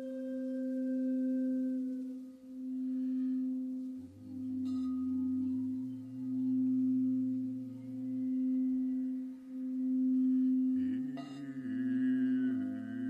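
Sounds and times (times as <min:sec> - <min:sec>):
crystal singing bowl tone: 0:00.0 - 0:13.0.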